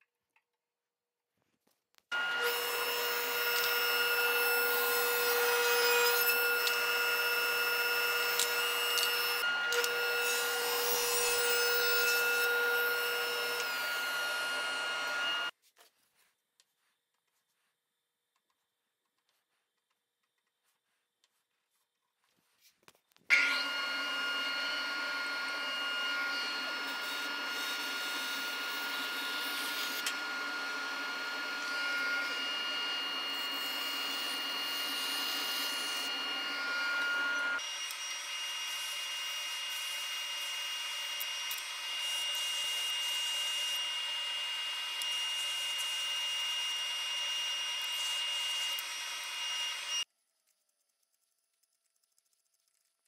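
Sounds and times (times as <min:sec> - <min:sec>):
bandsaw cutting wood: 0:02.1 - 0:15.5, 0:23.3 - 0:50.0.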